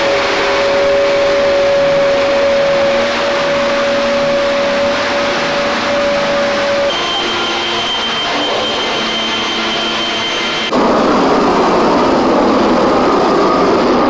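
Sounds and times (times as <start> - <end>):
leaf blower whining: 0.0 - 10.8
shop vacuum running: 0.0 - 14.0.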